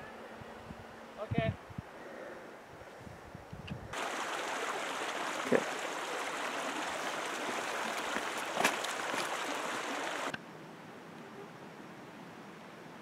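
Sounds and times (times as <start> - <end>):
mountain stream rushing: 3.9 - 10.4.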